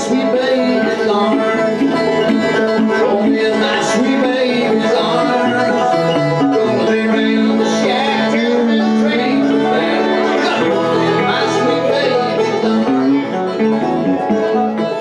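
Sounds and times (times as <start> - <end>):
banjo: 0.0 - 15.0
electric guitar: 0.0 - 15.0.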